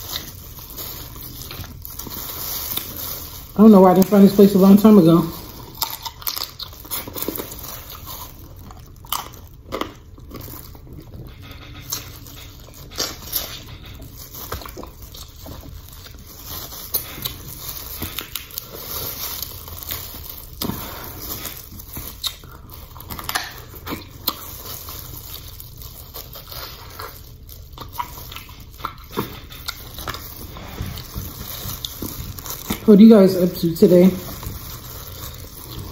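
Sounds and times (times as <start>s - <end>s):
wet chewing and lip-smacking: 5.4s - 32.8s.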